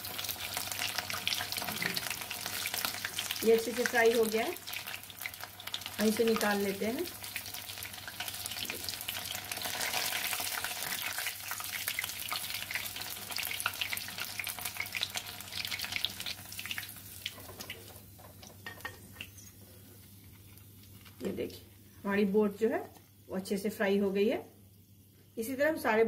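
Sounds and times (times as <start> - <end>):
food sizzling in hot oil: 0.0 - 19.5.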